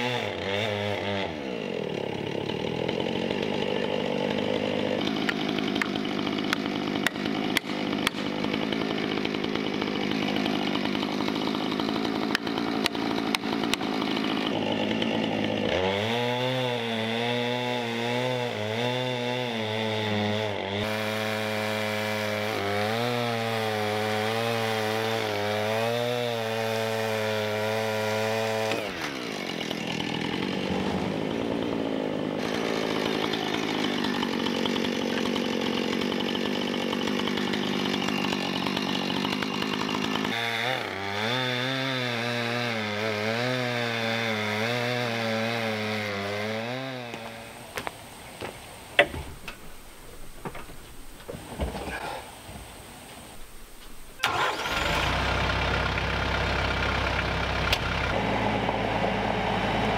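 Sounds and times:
chainsaw cutting log: 0.0 - 59.9.

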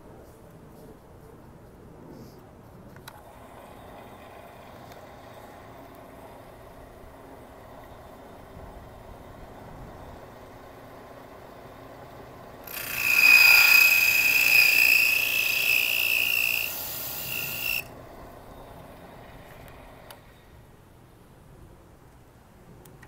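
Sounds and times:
drill press cutter screeching: 12.7 - 17.9.

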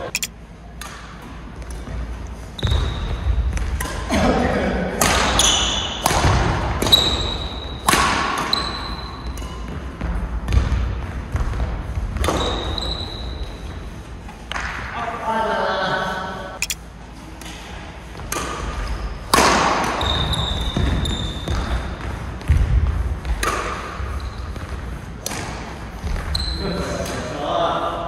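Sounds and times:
racket hitting shuttlecock: 0.7 - 1.9, 3.5 - 4.3, 5.0 - 9.8, 18.2 - 21.8, 23.3 - 24.0
shoes squeaking on court floor: 1.7 - 3.4, 8.4 - 10.1, 12.2 - 13.7, 20.0 - 22.1, 26.0 - 27.1.

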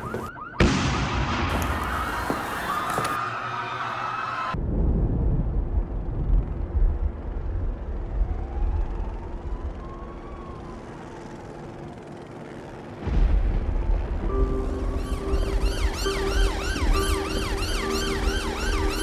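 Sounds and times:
faint distant siren wailing: 0.0 - 4.6, 7.4 - 12.6, 13.5 - 19.0
deep low rumble: 4.6 - 9.6.

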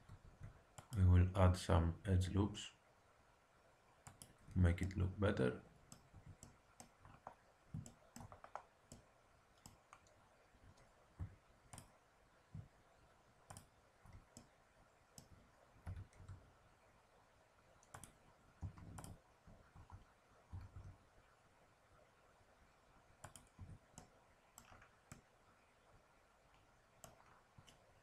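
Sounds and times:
computer mouse clicks: 0.0 - 1.0, 4.0 - 5.0, 5.9 - 12.0, 13.4 - 16.4, 17.8 - 19.2, 23.2 - 25.3, 26.5 - 27.9
keyboard key presses: 17.8 - 19.2.

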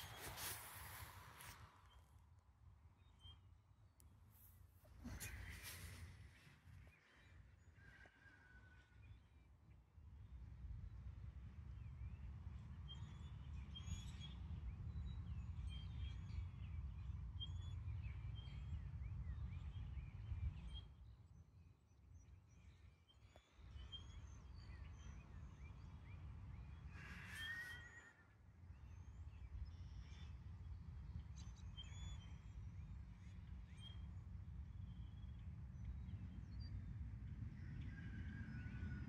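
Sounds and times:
songbirds chirping: 0.0 - 3.8.

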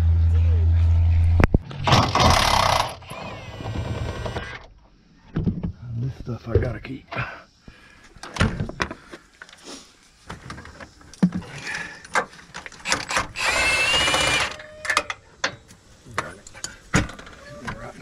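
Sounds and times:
impact wrench whining: 1.4 - 4.7, 12.8 - 15.1.

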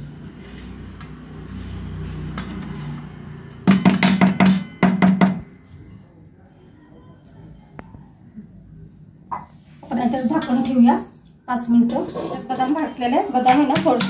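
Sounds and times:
spatula knocking on ringing pan: 3.6 - 5.6
wooden spatula scraping pan: 11.9 - 13.0.

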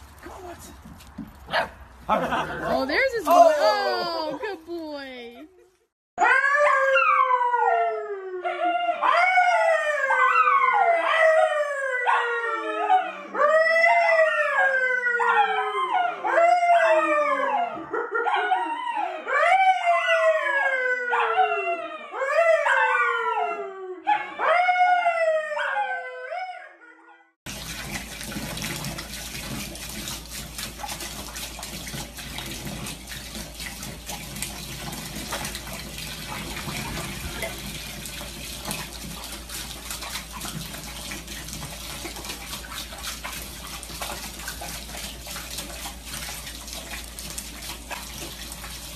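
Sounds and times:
man howling: 2.3 - 4.4
dog howling: 6.2 - 27.0
water running into bathtub: 27.4 - 48.9.

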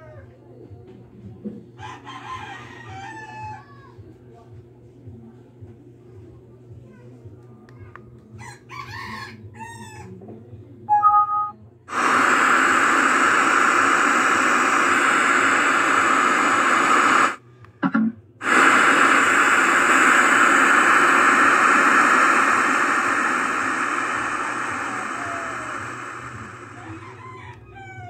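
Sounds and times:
two-tone beep: 10.9 - 11.6
radio static hiss: 11.9 - 27.5.

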